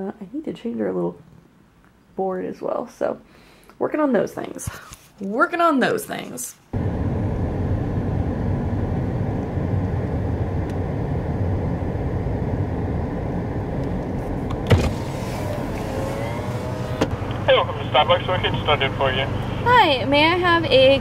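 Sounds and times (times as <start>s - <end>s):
car engine and road rumble: 6.7s - 21.0s.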